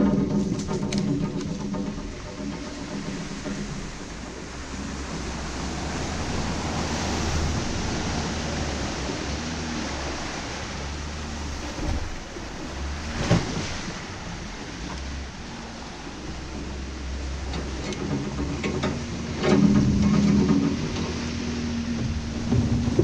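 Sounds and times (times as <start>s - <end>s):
engine low rumble: 0.0s - 23.0s
water splashing: 0.0s - 23.0s
wind on microphone: 0.0s - 23.0s.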